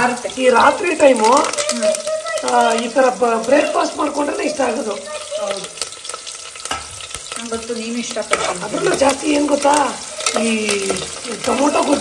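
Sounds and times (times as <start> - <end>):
onions frying in oil: 0.0 - 12.0
ladle scraping metal pot: 5.6 - 12.0.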